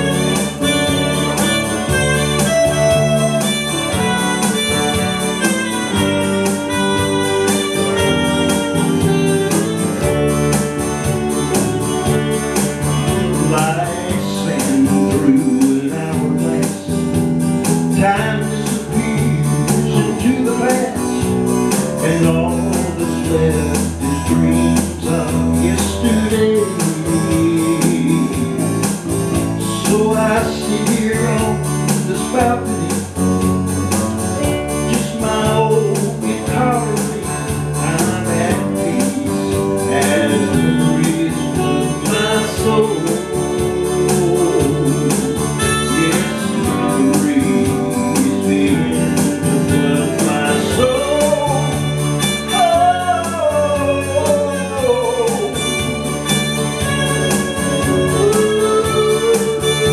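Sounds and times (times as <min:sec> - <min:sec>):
wavering lead melody: 0:00.0 - 0:16.1, 0:38.6 - 0:59.9
digital keyboard: 0:00.0 - 0:59.9
electric bass: 0:00.0 - 0:59.9
electric guitar: 0:00.0 - 0:59.9.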